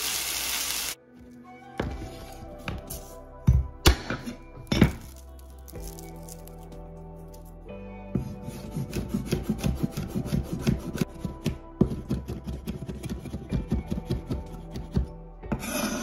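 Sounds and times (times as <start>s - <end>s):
cleaver mincing on wooden board: 8.2s - 15.1s.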